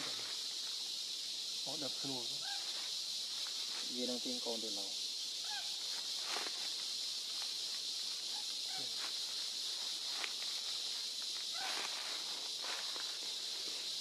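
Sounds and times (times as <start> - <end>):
high insect drone: 0.0 - 14.0.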